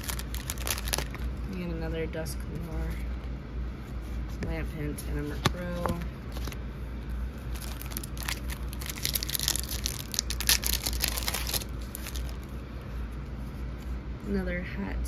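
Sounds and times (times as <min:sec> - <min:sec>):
foil wrapper crinkling and tearing: 0:00.0 - 0:01.4, 0:07.4 - 0:12.5.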